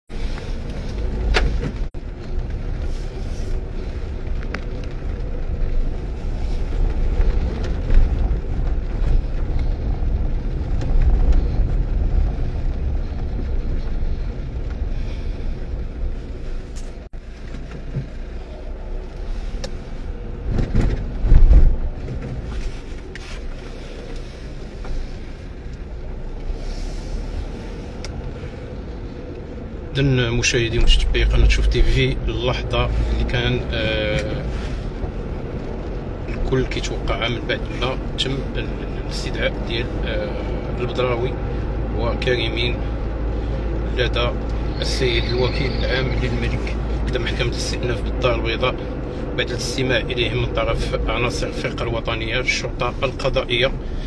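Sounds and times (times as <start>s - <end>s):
car road and engine rumble: 0.1s - 54.0s.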